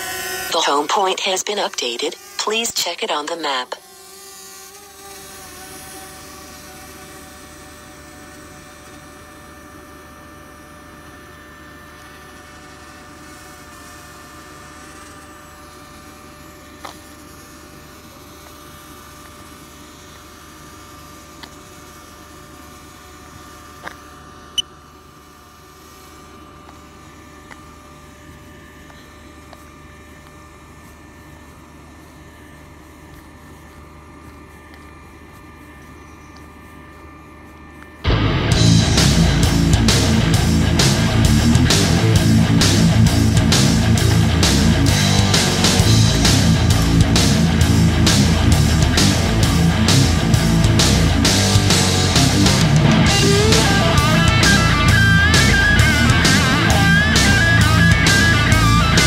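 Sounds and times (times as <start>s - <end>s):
drone propellers whining: 0.0s - 22.0s, 37.8s - 59.0s.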